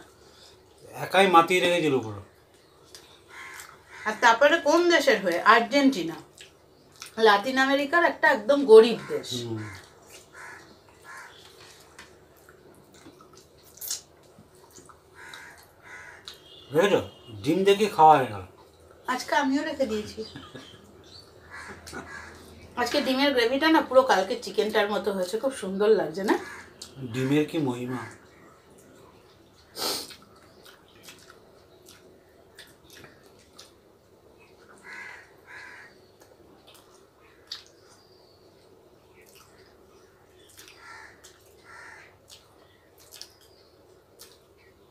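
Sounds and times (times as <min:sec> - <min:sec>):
chewing and lip smacks: 0:02.5 - 0:03.8, 0:06.3 - 0:07.2, 0:11.6 - 0:16.5, 0:28.7 - 0:33.9, 0:36.2 - 0:38.0, 0:38.6 - 0:39.8, 0:40.4 - 0:44.7
crow cawing: 0:03.2 - 0:04.5, 0:08.9 - 0:11.7, 0:15.1 - 0:16.7, 0:21.4 - 0:22.6, 0:26.3 - 0:26.9, 0:27.9 - 0:28.2, 0:34.8 - 0:36.0, 0:40.8 - 0:42.2.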